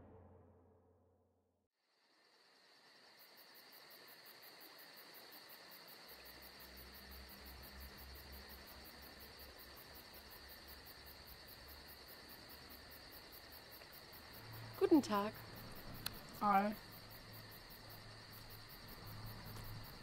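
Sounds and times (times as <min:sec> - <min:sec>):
low rumble: 0:00.0 - 0:01.4
insects chirring: 0:01.8 - 0:20.0.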